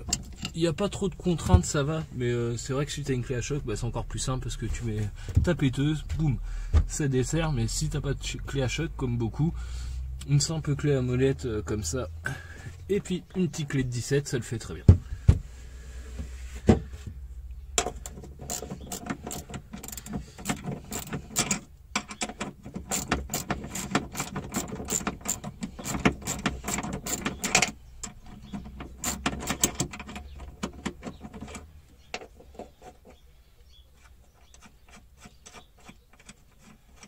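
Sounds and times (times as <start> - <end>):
ratchet wrench clicking: 17.8 - 28.2, 28.9 - 30.2.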